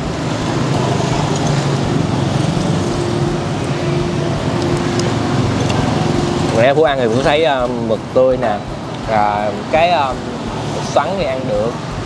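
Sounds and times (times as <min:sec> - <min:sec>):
road traffic engines humming: 0:00.0 - 0:12.0.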